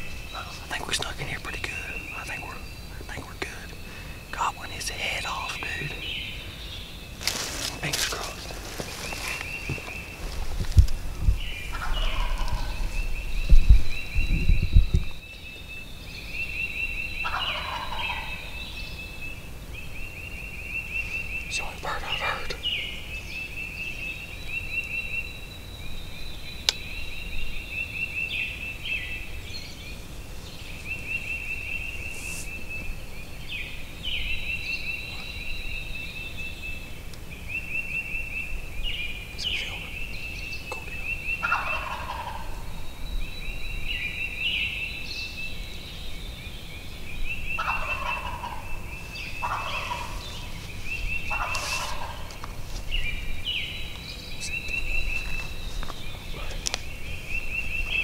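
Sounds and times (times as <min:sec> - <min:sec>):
turkey gobbling: 0:11.7 - 0:12.8, 0:17.2 - 0:18.5, 0:41.4 - 0:42.6, 0:47.6 - 0:48.7, 0:49.4 - 0:50.5, 0:51.3 - 0:52.5.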